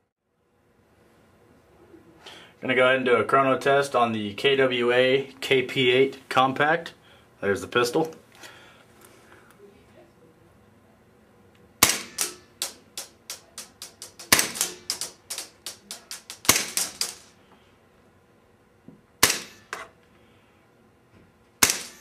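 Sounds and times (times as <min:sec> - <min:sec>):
airsoft pistol shots: 0:11.8 - 0:17.3, 0:19.2 - 0:19.9, 0:21.6 - 0:22.0.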